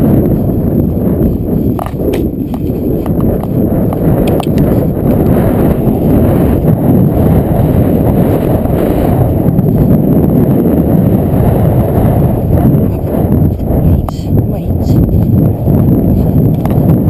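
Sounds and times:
horse hoofbeats on grass: 0.0 - 7.7
low rumble: 0.0 - 17.0.

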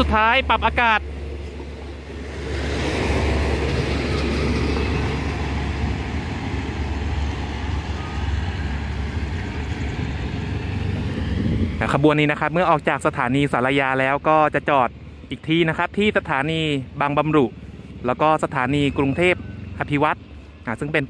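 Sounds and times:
train coaches rolling on rails: 0.0 - 15.0.

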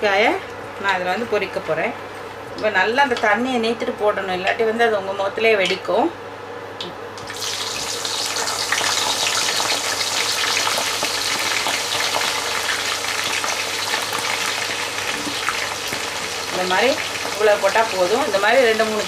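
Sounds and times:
oil sizzling and crackling: 7.2 - 19.0.

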